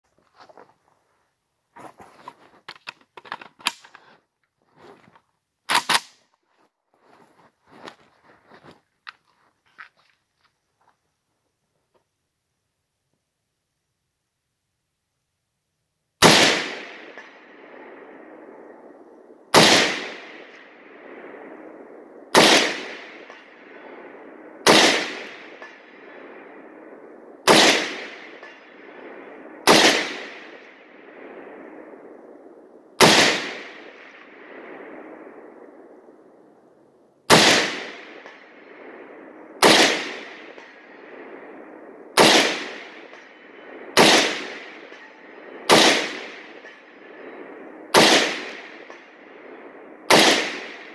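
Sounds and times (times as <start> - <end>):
rifle single shots echoing: 16.2 - 35.9, 37.3 - 50.9.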